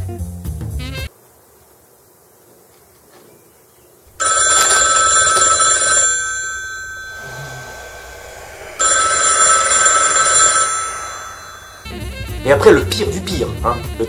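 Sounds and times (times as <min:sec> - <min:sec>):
telephone ringing: 0:04.2 - 0:12.8.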